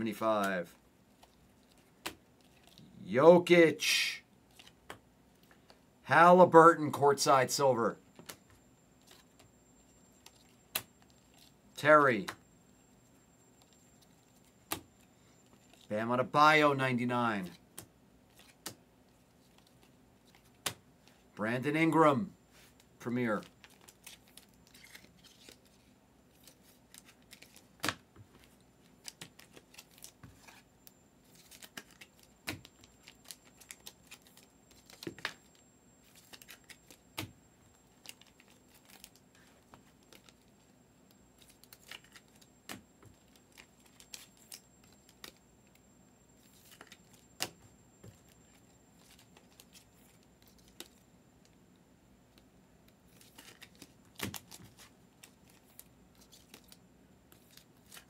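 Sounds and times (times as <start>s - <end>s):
cards clicking and snapping: 31.4s - 35.4s.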